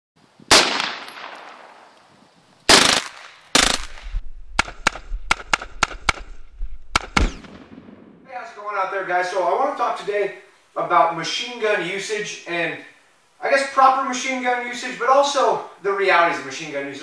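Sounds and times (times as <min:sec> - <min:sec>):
rifle gunfire: 0:00.5 - 0:01.8, 0:02.7 - 0:08.3.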